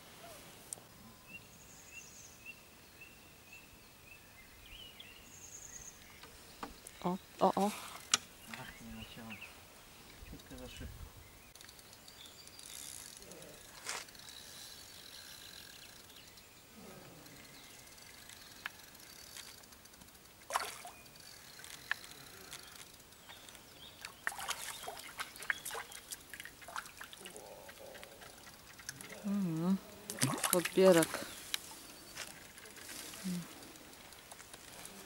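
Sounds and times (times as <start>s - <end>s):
fish splashing at water surface: 20.5s - 21.0s, 30.1s - 31.2s.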